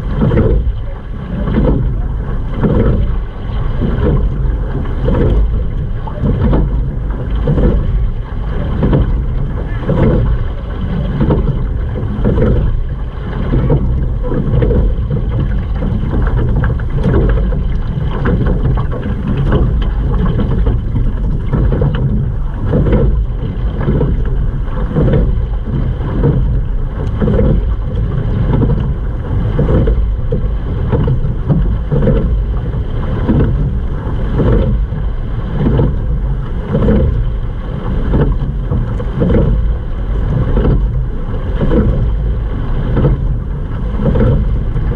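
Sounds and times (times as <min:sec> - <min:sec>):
oars stroking water: 0:00.0 - 0:44.9
water rushing along hull: 0:00.0 - 0:44.9
wind rumble on microphone: 0:00.0 - 0:44.9.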